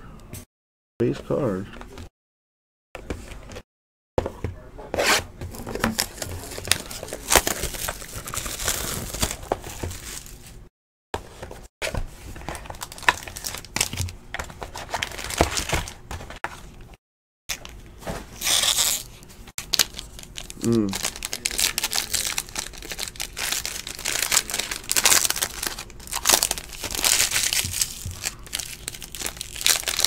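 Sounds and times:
foil packs crinkling: 0:05.5 - 0:10.6, 0:12.4 - 0:16.4, 0:18.4 - 0:30.0.

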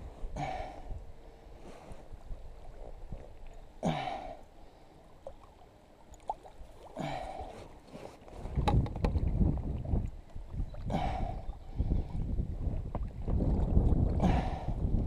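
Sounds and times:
water lapping around a kayak: 0:00.0 - 0:15.0
breathy grunts of effort: 0:00.3 - 0:01.0, 0:03.8 - 0:04.4, 0:07.0 - 0:07.7, 0:10.9 - 0:11.5, 0:14.2 - 0:14.8.

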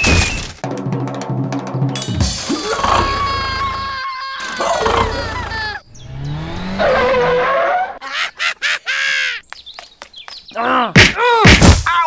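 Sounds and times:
music: 0:00.6 - 0:03.5
tyres skidding: 0:02.6 - 0:08.1
motorbike engine revving: 0:04.8 - 0:07.5.

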